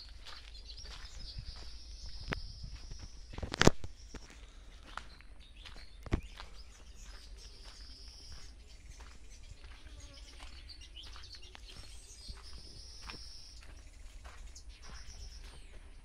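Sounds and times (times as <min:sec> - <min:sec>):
steady low rumble: 0:00.0 - 0:09.7
light footstep clicks: 0:00.2 - 0:09.8.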